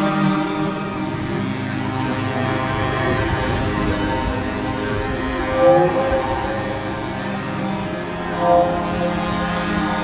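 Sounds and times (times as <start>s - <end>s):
droning background music: 0.0s - 10.0s
sliding tone: 5.1s - 9.9s.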